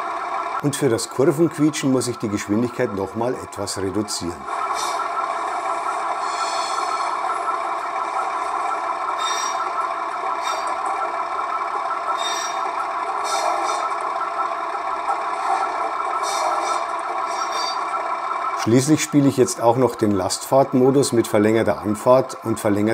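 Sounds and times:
diesel engine running over loudspeaker: 0.0s - 22.9s
high-pitched wheel squeal: 9.2s - 11.0s, 12.1s - 14.0s, 15.4s - 17.9s.

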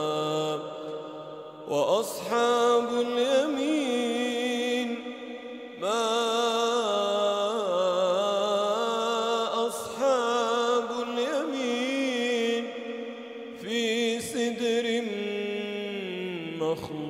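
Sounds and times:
man chanting melodically: 0.0s - 17.0s.

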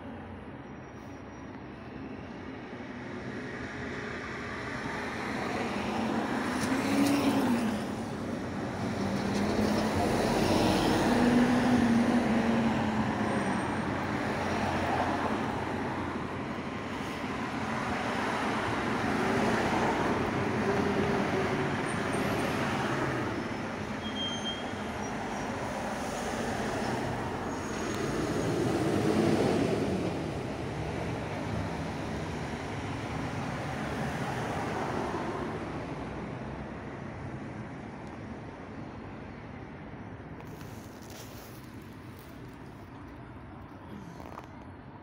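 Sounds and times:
road traffic passing: 0.0s - 45.0s.

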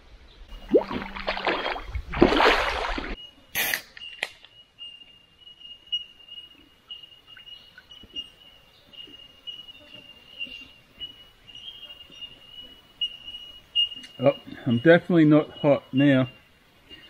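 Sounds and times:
water splashing and sloshing: 0.5s - 3.2s.

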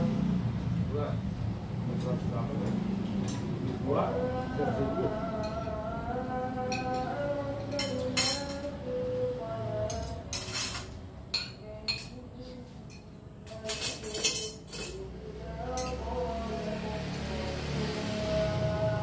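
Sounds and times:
spoons clinking on plates: 6.7s - 8.8s, 9.9s - 12.2s, 12.8s - 15.0s, 15.7s - 16.1s.

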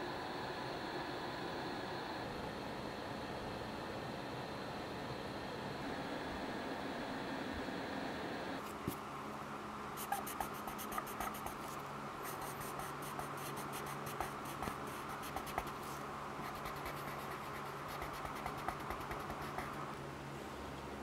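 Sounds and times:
faint low hum: 0.0s - 21.0s
pencil scratching on paper: 10.0s - 19.9s.

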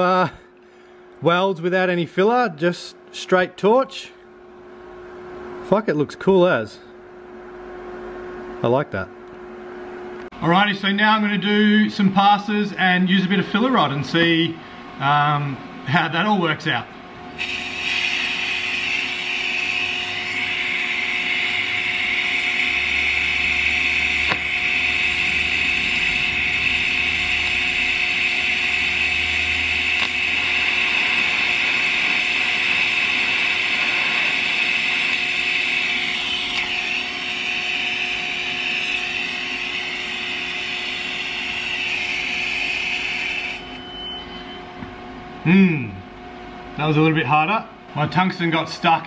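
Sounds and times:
welding arc hissing and buzzing: 17.4s - 43.8s.

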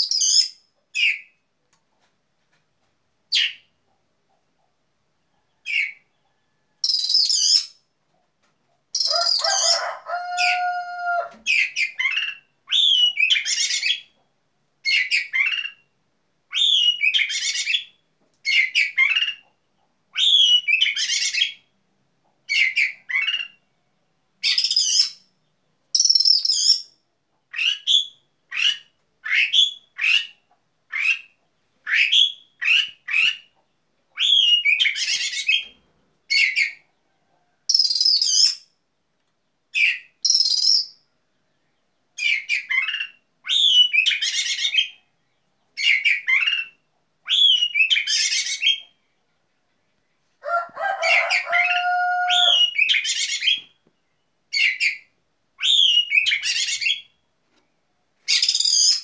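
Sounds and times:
lower-pitched bird call: 9.0s - 14.1s, 50.4s - 53.7s
bird singing whistled phrases: 12.7s - 13.6s, 16.5s - 17.4s, 20.2s - 21.0s, 34.2s - 35.0s, 37.7s - 38.6s, 39.8s - 41.0s, 43.5s - 44.2s, 47.3s - 48.4s, 52.4s - 53.7s, 55.6s - 57.1s.

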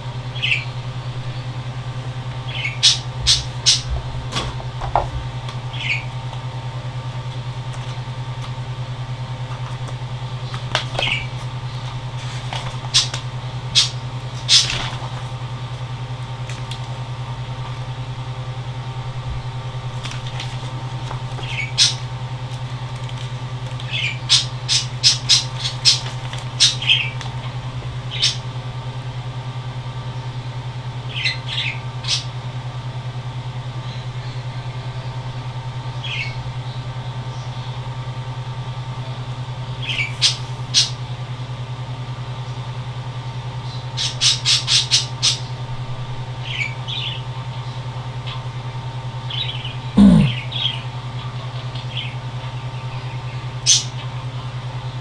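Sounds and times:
steady low hum: 0.0s - 42.7s, 45.5s - 55.0s
bird chirps and squawks: 50.0s - 50.7s.

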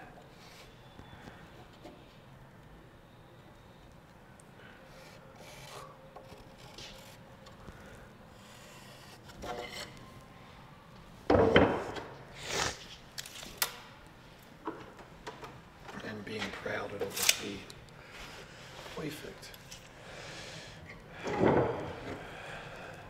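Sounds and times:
wooden knock and rattle: 11.3s - 12.0s, 21.3s - 21.9s.

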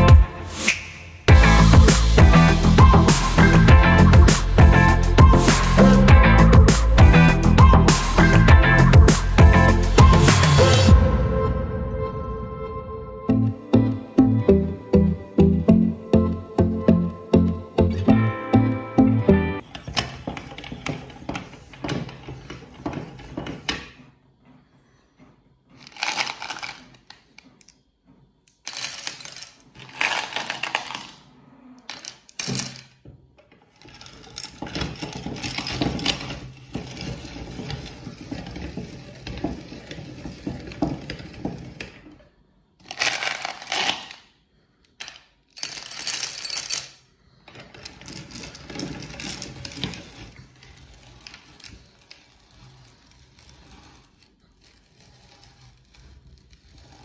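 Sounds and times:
meat grinder crunching candy: 25.7s - 27.6s, 33.8s - 41.9s, 47.8s - 57.0s
candies clattering against metal: 25.8s - 27.7s, 28.5s - 33.0s, 33.7s - 42.0s, 42.8s - 44.3s, 44.9s - 54.0s.

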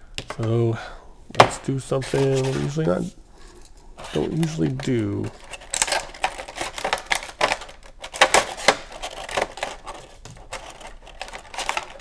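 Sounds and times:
plastic bag crinkling: 4.0s - 12.0s
knife slitting plastic: 4.2s - 12.0s.

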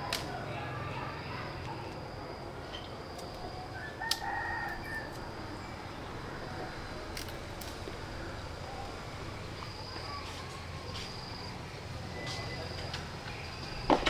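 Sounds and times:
steady high hum: 0.0s - 14.0s
rooster crowing: 3.5s - 5.7s.

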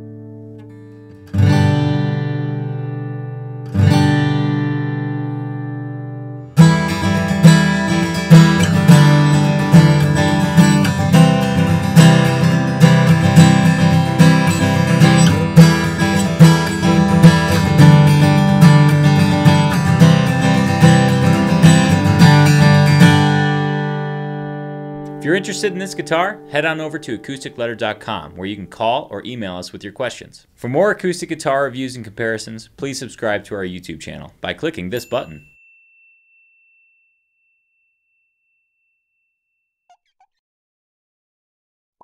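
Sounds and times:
acoustic guitar strumming: 0.0s - 29.6s.

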